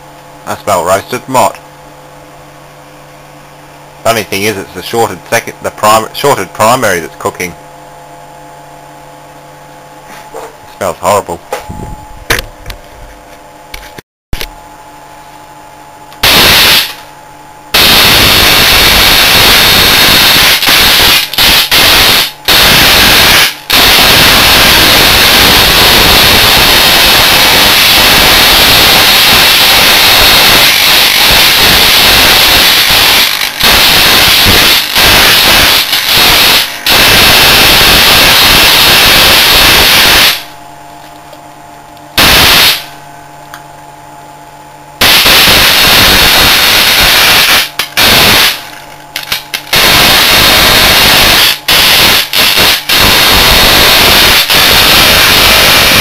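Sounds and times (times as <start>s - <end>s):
steady hum: 0.0s - 56.0s
crackling electric arc: 16.2s - 17.1s, 17.7s - 40.5s, 42.2s - 43.0s, 45.0s - 56.0s.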